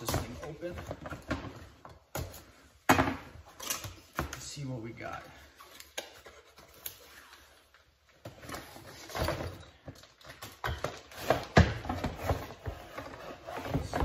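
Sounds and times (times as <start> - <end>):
cardboard and plastic rustling: 5.4 - 14.0.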